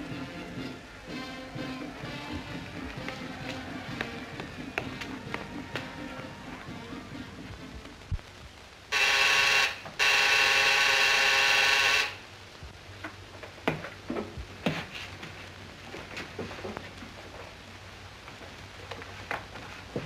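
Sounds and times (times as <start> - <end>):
electric buzzer ringing: 8.9 - 12.2.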